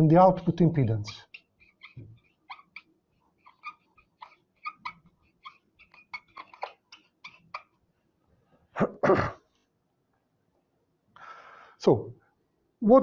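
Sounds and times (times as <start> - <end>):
marker squeaking on whiteboard: 0.0 - 7.9.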